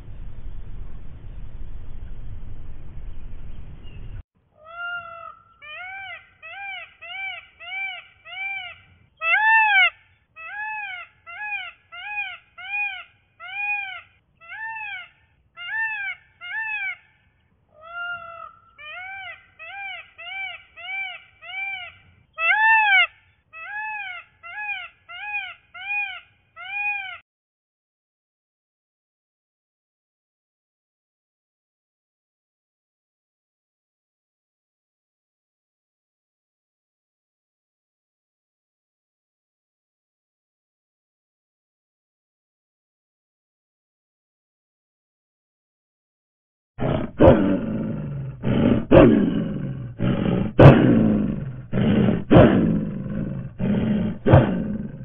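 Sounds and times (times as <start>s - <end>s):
low steady noise: 0.0s - 4.2s
peacock calling: 4.6s - 27.2s.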